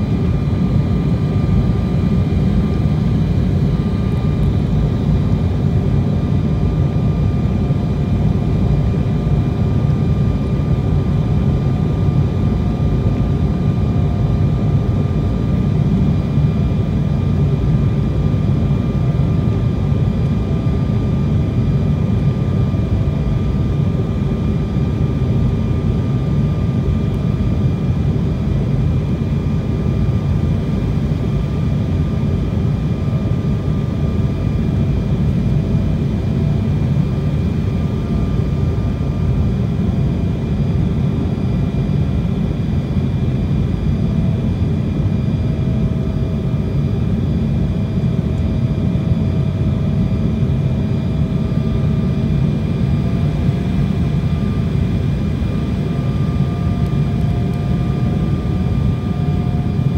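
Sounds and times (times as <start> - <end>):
airliner engines and rushing air: 0.0 - 59.9
faint steady whine: 0.0 - 59.9.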